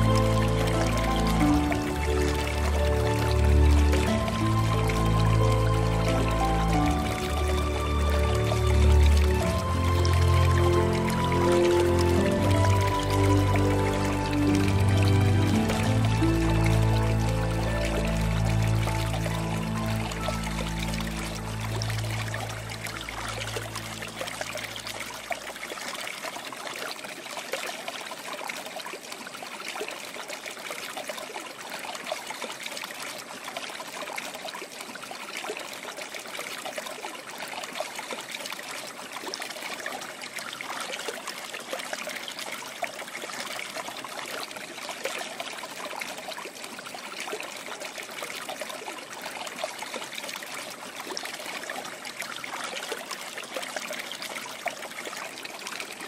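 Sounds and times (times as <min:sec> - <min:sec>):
low-pitched music: 0:00.0 - 0:25.2
water trickling: 0:00.0 - 0:56.0.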